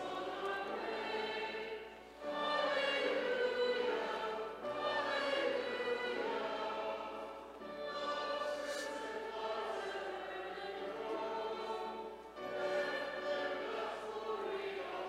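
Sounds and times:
congregation singing a hymn: 0:00.0 - 0:15.0.

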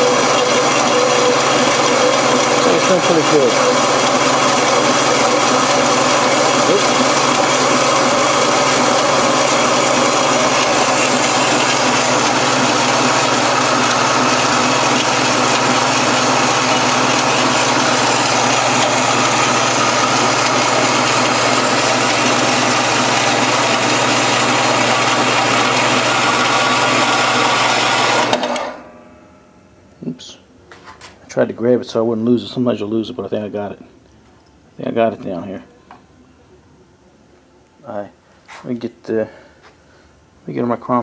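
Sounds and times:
bandsaw cutting metal: 0:00.0 - 0:28.8.

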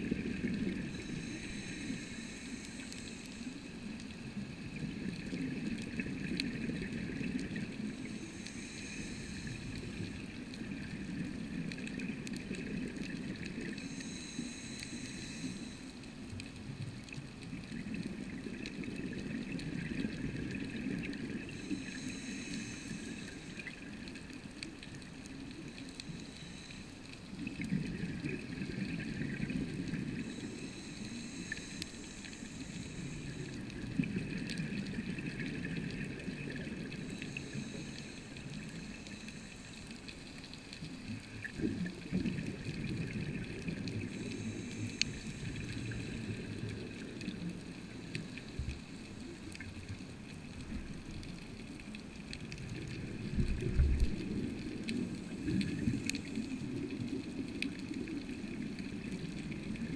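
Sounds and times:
regulator hissing inhale: 0:00.8 - 0:04.4, 0:07.8 - 0:10.4, 0:13.7 - 0:16.1, 0:21.4 - 0:24.2, 0:25.8 - 0:27.3, 0:29.8 - 0:33.9, 0:36.8 - 0:40.5, 0:44.0 - 0:49.0.

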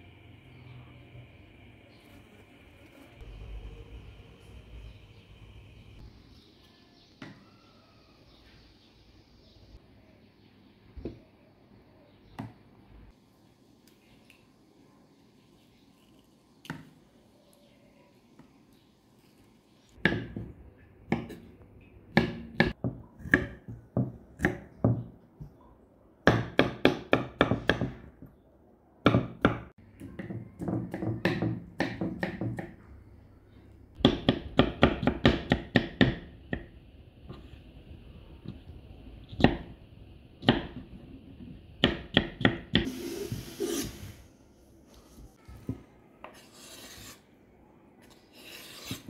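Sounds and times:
knife scraping board: 0:42.8 - 0:44.2, 0:46.3 - 0:47.3, 0:48.0 - 0:49.0.

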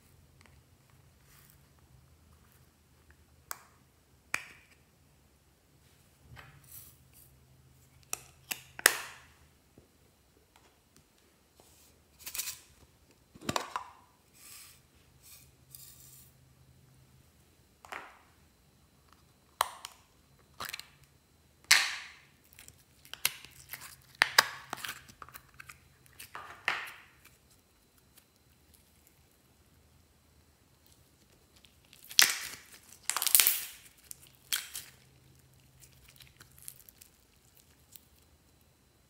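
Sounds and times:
sticky crackling slime: 0:30.9 - 0:38.3.

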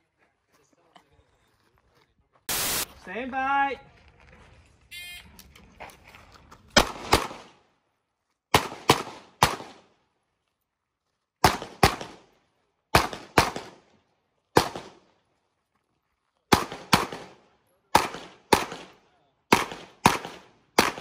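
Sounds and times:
handgun shots: 0:08.5 - 0:09.8, 0:11.4 - 0:12.2, 0:13.0 - 0:13.8, 0:18.0 - 0:21.0.

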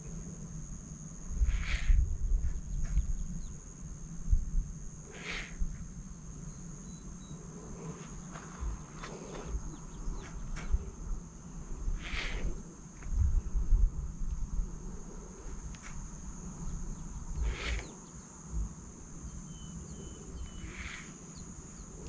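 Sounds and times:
high-pitched insect drone: 0:00.0 - 0:22.0
low rumbling thumps: 0:18.5 - 0:19.0.

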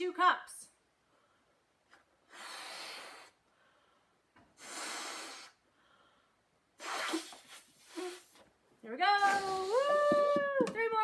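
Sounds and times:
person blowing into balloon: 0:02.2 - 0:03.4, 0:04.6 - 0:05.6, 0:06.8 - 0:08.4, 0:09.2 - 0:10.0.

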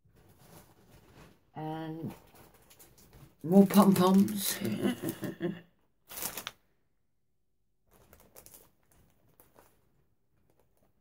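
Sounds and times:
plastic packets crinkling: 0:02.3 - 0:05.3, 0:06.0 - 0:06.7, 0:07.9 - 0:11.0.

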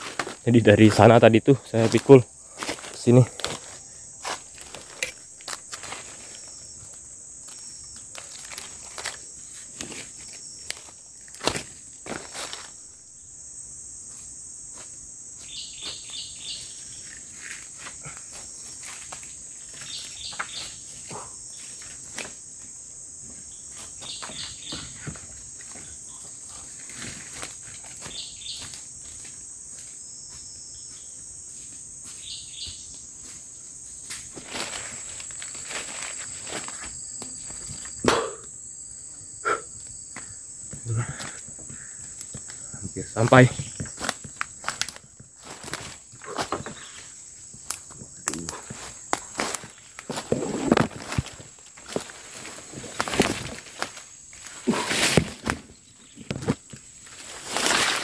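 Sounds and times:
footsteps on forest floor: 0:00.0 - 0:12.9, 0:14.1 - 0:38.3, 0:40.2 - 0:58.0
forest insects droning: 0:00.0 - 0:58.0.

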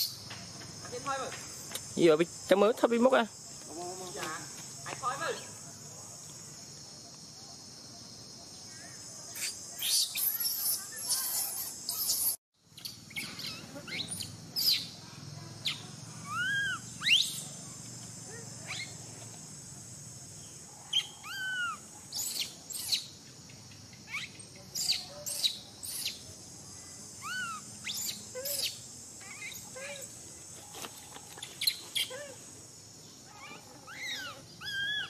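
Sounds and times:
insect drone: 0:00.0 - 0:35.0
whistle-like animal cries: 0:33.4 - 0:35.0.

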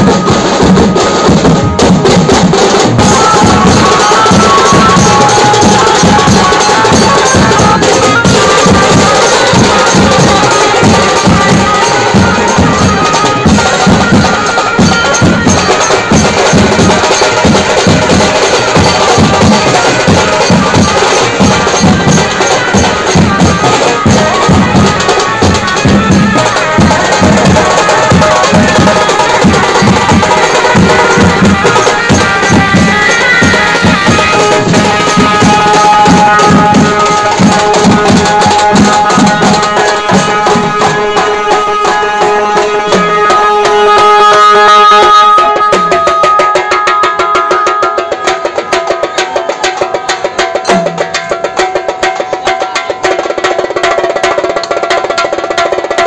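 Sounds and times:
cymbals: 0:00.0 - 0:56.0
dhol drums struck with mallets: 0:00.0 - 0:56.0
metal tom drums: 0:00.0 - 0:56.0
sustained melody line: 0:21.0 - 0:47.0.

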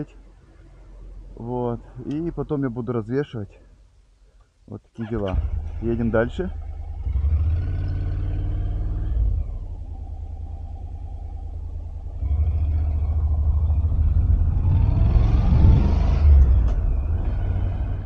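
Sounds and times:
motorcycle engine rumble: 0:05.0 - 0:18.0.

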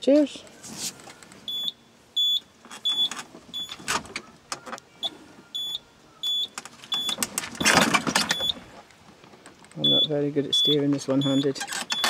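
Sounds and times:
short high warning beeps: 0:01.5 - 0:03.8, 0:05.6 - 0:07.2, 0:09.8 - 0:12.0.

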